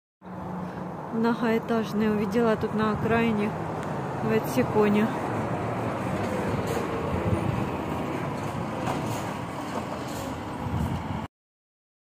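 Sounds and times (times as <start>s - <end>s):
road traffic passing: 0.2s - 11.3s
truck towing trailer: 2.3s - 11.3s.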